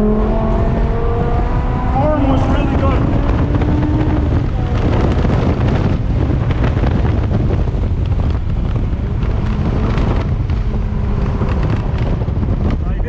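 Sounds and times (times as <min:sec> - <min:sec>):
faint car engine: 0:00.0 - 0:13.0
wind buffeting microphone: 0:00.0 - 0:13.0.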